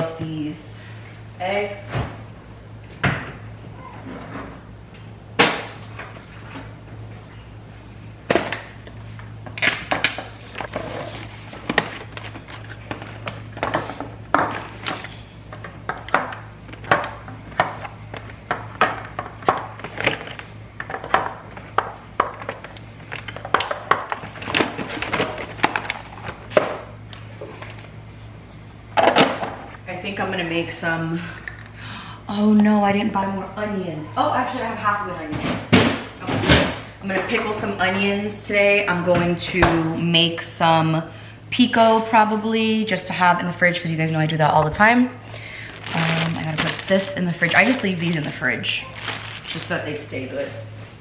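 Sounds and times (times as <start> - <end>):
low steady hum: 0.0 - 51.0.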